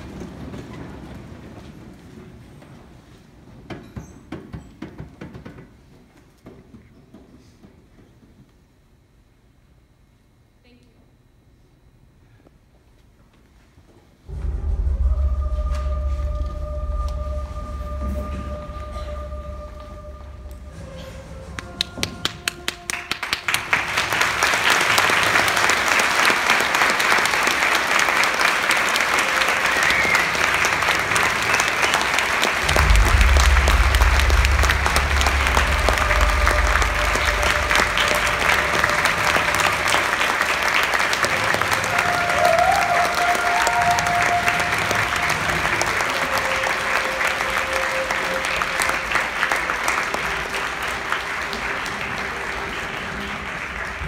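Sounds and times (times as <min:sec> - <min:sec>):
low rumble: 0:14.3 - 0:22.3, 0:30.4 - 0:40.6
audience applauding: 0:15.0 - 0:54.0.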